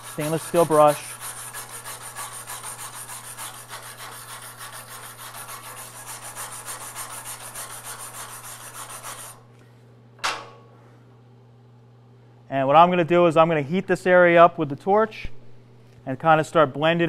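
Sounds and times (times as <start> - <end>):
wire brush scrubbing metal: 0.0 - 9.4.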